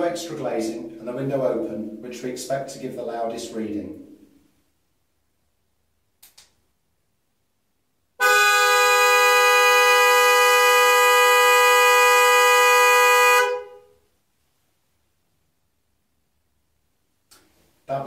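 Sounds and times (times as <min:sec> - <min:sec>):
faint click: 0:06.2 - 0:06.6
two-tone car horn blast: 0:08.2 - 0:14.0.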